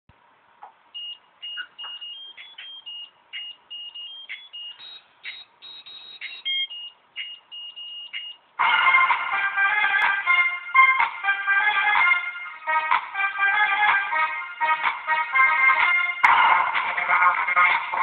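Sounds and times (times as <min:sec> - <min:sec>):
high electronic beeps: 0:01.0 - 0:08.4
loud music: 0:08.6 - 0:18.0.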